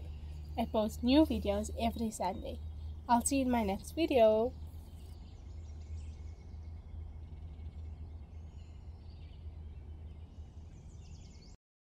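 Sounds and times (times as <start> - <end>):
low steady hum: 0.0 - 11.6.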